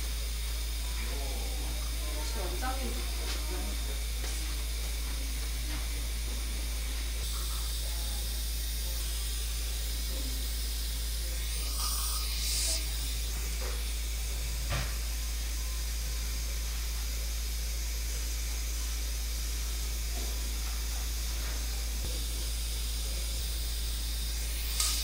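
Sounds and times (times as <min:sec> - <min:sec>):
hiss: 0:07.2 - 0:25.0.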